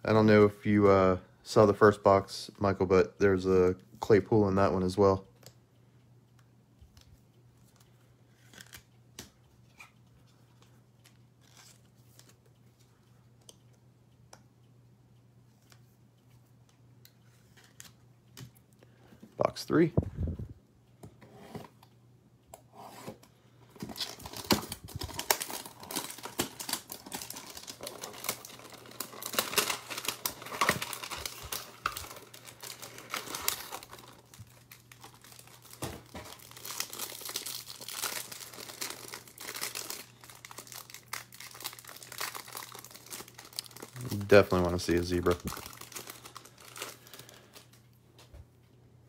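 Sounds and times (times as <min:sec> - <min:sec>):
cardboard and plastic crinkling: 0:23.7 - 0:47.8.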